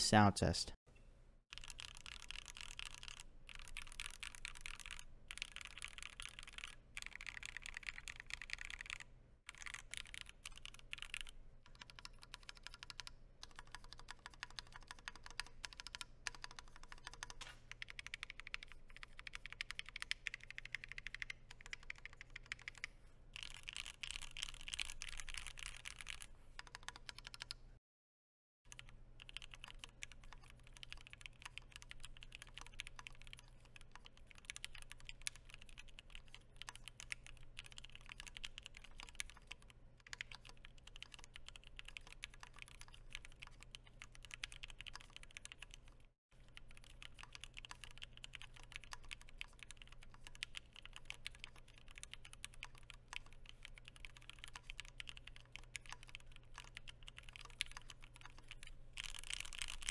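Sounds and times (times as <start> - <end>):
mechanical keyboard typing: 1.5 - 27.6, 28.7 - 59.9.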